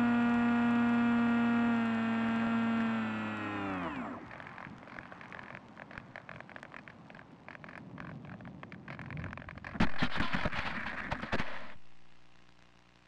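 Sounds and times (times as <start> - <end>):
radio crackle and clicking: 3.5 - 13.0.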